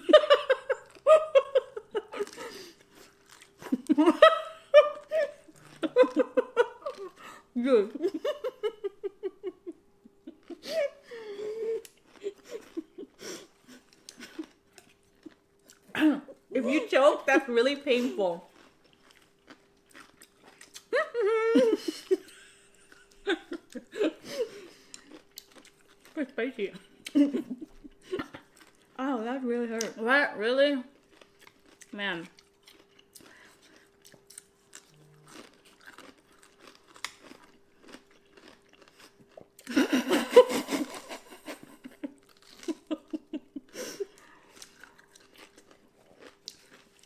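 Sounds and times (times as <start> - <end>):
people chewing: 0.0 - 9.5, 10.1 - 29.9, 31.0 - 47.0
people laughing: 3.6 - 7.1, 39.7 - 44.0
crunching pickled ginger: 18.4 - 20.9, 24.9 - 26.2, 30.9 - 39.7, 42.1 - 43.3, 44.1 - 47.0.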